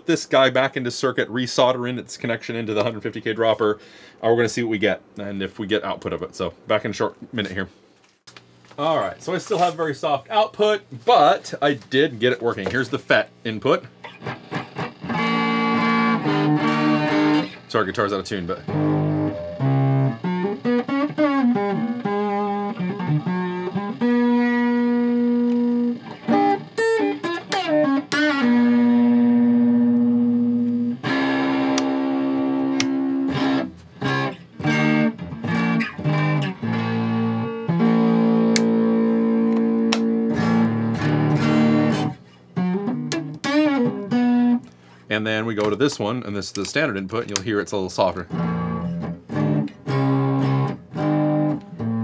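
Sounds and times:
electric guitar single notes: 0:14.0 - 0:17.7, 0:18.3 - 0:44.8, 0:48.3 - 0:52.0.

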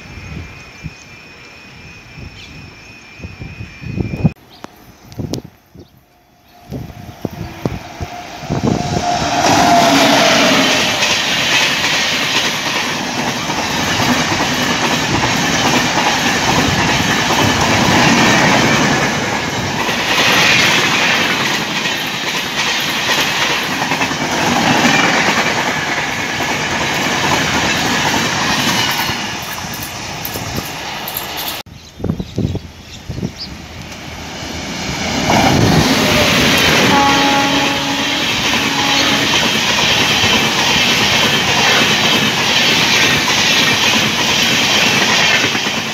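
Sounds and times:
train passing at speed: 0:00.0 - 0:31.7, 0:32.6 - 0:45.9
wheels clacking over rail joints: 0:08.9 - 0:31.6, 0:33.8 - 0:45.9.

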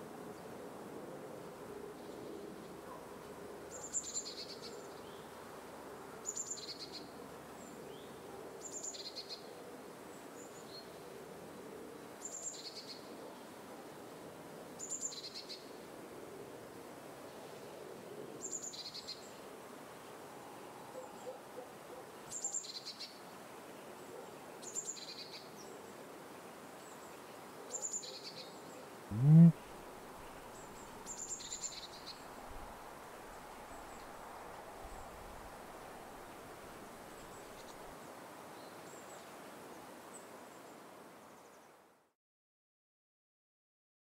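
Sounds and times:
steady background hiss: 0:00.0 - 0:42.1
animal rising cry: 0:29.1 - 0:29.6
bird two-note call: 0:29.1 - 0:29.6.

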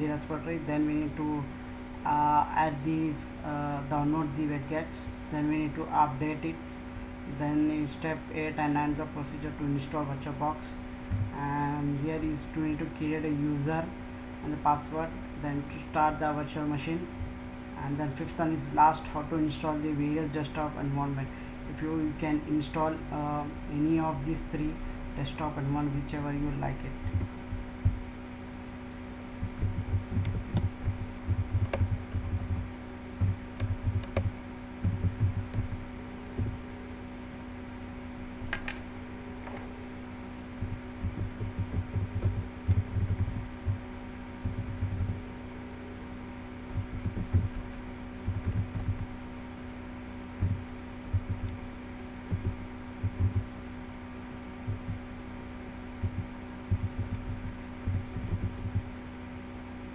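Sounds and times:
steady low hum: 0:00.0 - 0:59.9
typing on computer keyboard: 0:29.5 - 0:32.7, 0:33.6 - 0:35.6, 0:41.1 - 0:43.5, 0:48.2 - 0:49.0.

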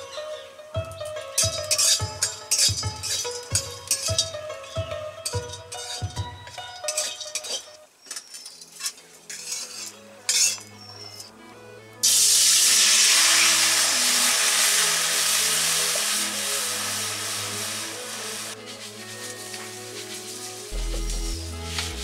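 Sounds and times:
soft background music: 0:00.0 - 0:22.0
metal spatula scraping wok: 0:01.4 - 0:11.3
water hissing in hot wok: 0:12.0 - 0:22.0.

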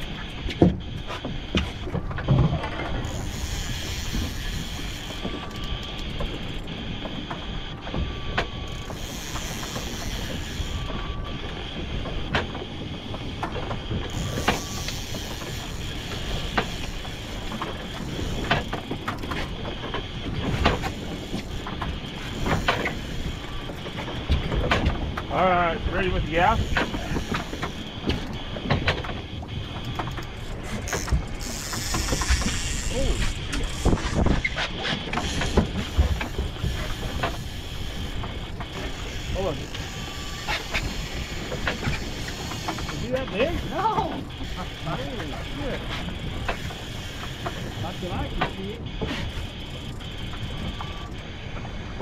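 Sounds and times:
outboard motor running: 0:00.0 - 0:52.0
wind and water rumble: 0:00.0 - 0:52.0
fishing reel clicking: 0:03.0 - 0:06.7, 0:08.7 - 0:10.9, 0:14.1 - 0:19.3, 0:30.2 - 0:34.4, 0:35.2 - 0:45.5, 0:46.1 - 0:48.6.

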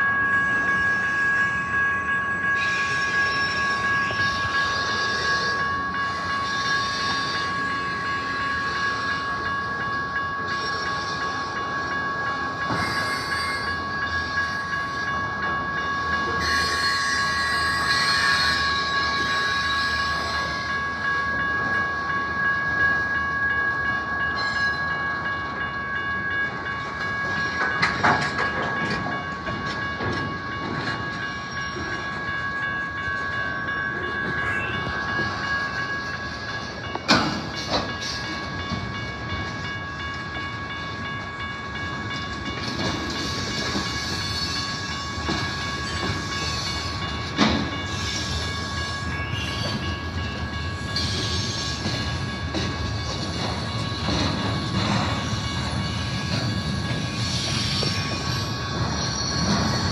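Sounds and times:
freight train cars rolling past: 0:00.0 - 0:59.9
steady high-pitched tone: 0:00.0 - 0:59.9.

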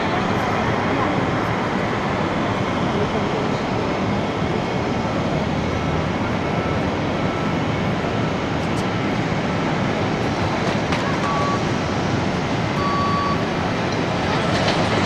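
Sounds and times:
jet engines at takeoff thrust: 0:00.0 - 0:15.0.

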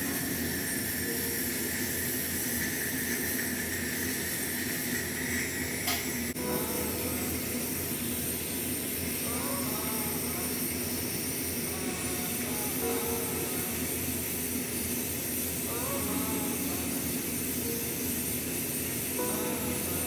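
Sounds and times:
dental drill hissing and whining: 0:00.0 - 0:20.0.

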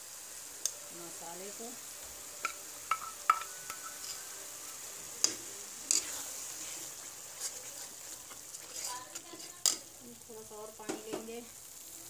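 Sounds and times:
oil and spices sizzling: 0:00.0 - 0:12.0
steel spatula clinking: 0:02.4 - 0:04.4, 0:05.2 - 0:06.2
spice paste scraped and stirred: 0:02.4 - 0:10.0.

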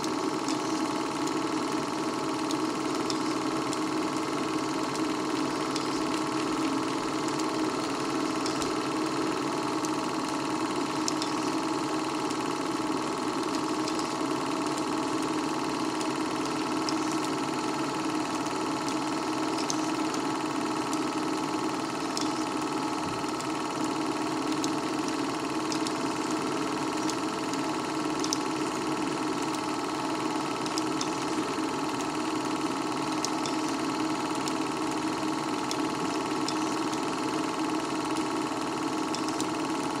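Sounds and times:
movie projector whirring: 0:00.0 - 0:40.0.

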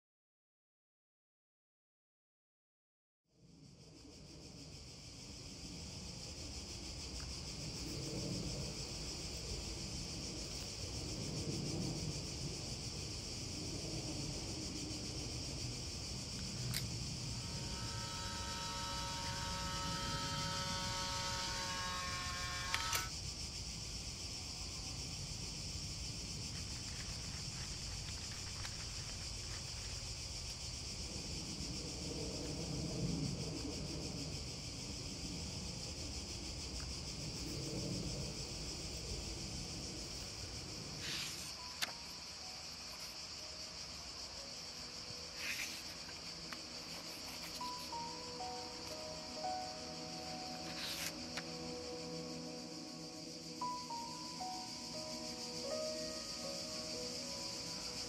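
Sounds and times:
insects chorus: 0:03.4 - 0:58.0
camera whirring: 0:17.5 - 0:23.1
camera click: 0:22.4 - 0:23.1.

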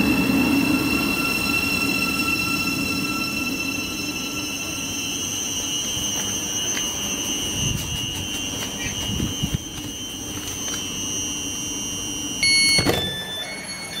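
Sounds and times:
train two-tone whine: 0:00.0 - 0:14.0
door-closing warning beep: 0:04.0 - 0:14.0
sliding doors knocking shut: 0:12.7 - 0:13.3.

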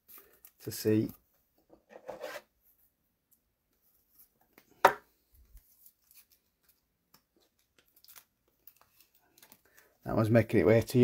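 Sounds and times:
cards rustling and ticking: 0:04.2 - 0:11.0.

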